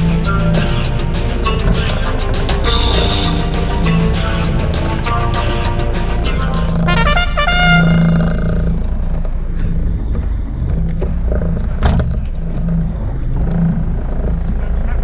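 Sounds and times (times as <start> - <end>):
brass music sting: 0.0 - 8.4
boat engine humming: 0.0 - 15.0.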